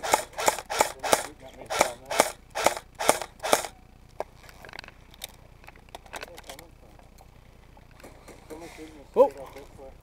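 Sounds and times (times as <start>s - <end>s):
airsoft rifle shots: 0.0s - 3.7s.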